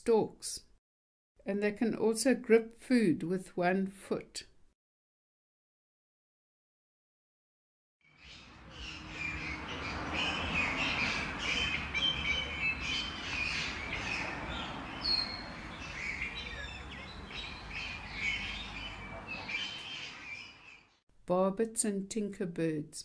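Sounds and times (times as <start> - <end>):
birds chirping and squawking: 8.1 - 21.0.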